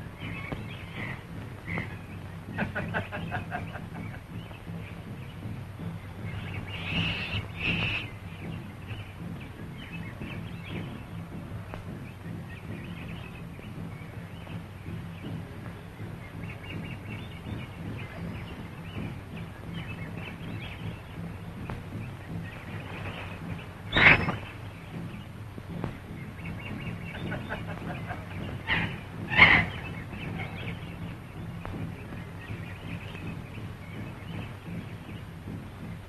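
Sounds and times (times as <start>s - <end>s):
low film soundtrack hum: 0.0s - 36.0s
high chattering animal calls: 0.1s - 5.2s, 6.2s - 8.3s, 23.4s - 24.6s, 26.2s - 33.4s.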